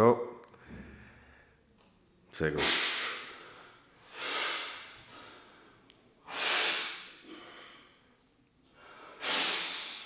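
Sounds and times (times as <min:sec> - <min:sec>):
forceful exhalations: 0:00.6 - 0:01.6, 0:02.6 - 0:08.1.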